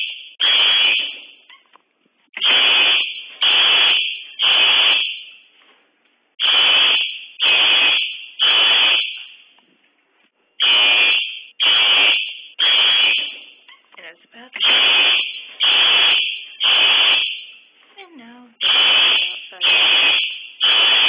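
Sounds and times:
fire alarm horn blasts: 0:00.0 - 0:01.5, 0:02.4 - 0:05.5, 0:06.4 - 0:09.4, 0:10.6 - 0:13.6, 0:14.6 - 0:17.7, 0:18.6 - 0:21.0.

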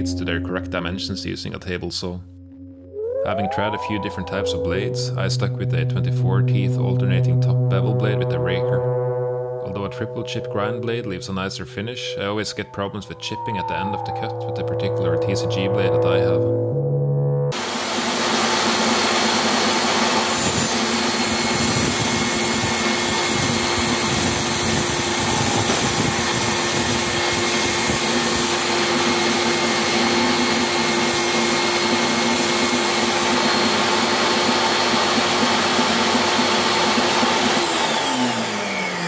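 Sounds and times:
table saw cutting plastic: 0:17.6 - 0:39.0.

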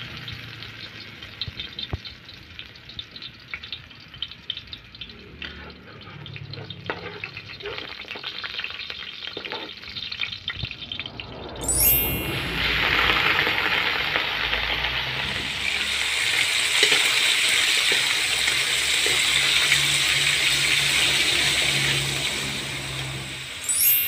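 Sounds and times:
food sizzling in a pan: 0:00.0 - 0:24.0
rising swoosh: 0:10.2 - 0:16.3.

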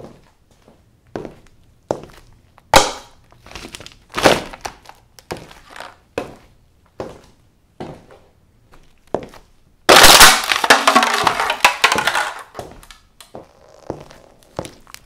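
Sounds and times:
paper cups crunching: 0:03.3 - 0:06.0, 0:09.9 - 0:12.6.

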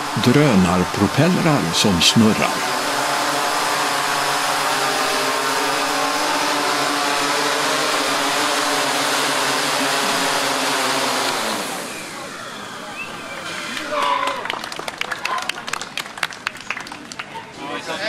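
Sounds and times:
camera drone propellers buzzing: 0:00.0 - 0:13.7.

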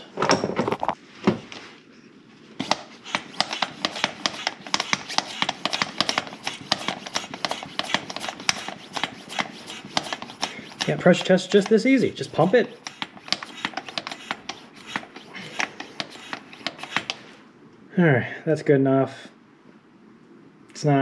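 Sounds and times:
hand pump clicking: 0:02.6 - 0:17.2.

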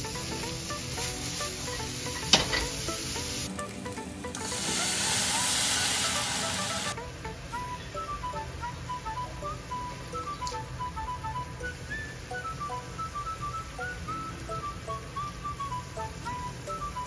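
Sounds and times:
sauce sizzling in hot pan: 0:00.0 - 0:07.0
vegetables sizzling in a frying pan: 0:00.0 - 0:07.0.

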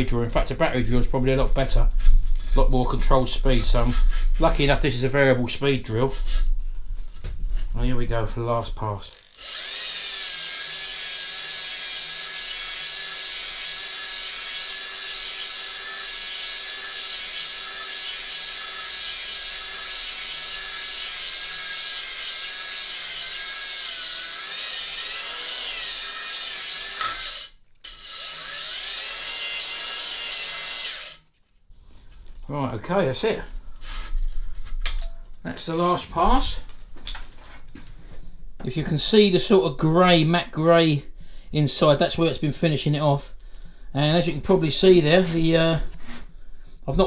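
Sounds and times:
electric drill motor whine: 0:09.2 - 0:26.1.

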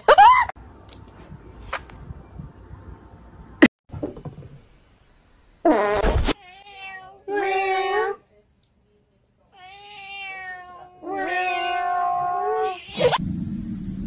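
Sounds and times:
cat meowing: 0:06.4 - 0:08.2, 0:09.6 - 0:13.2.

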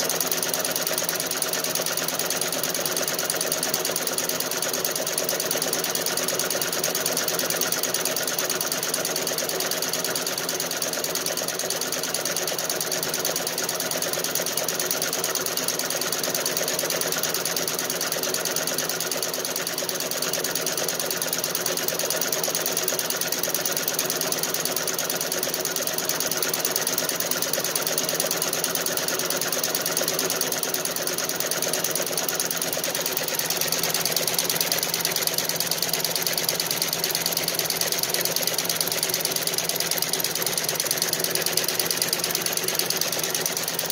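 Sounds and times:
embroidery machine clattering: 0:18.8 - 0:43.9.

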